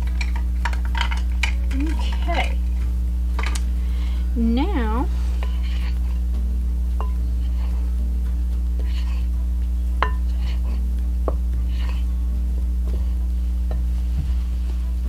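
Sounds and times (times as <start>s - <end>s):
steady low hum: 0.0s - 15.0s
spoon knocking against glass: 10.0s - 10.3s.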